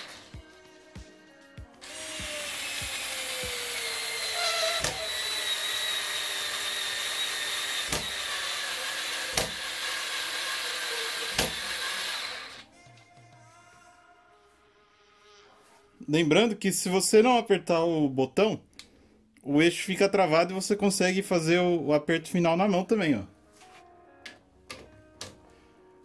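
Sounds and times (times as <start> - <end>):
cordless screwdriver motor whining: 1.8 - 12.6.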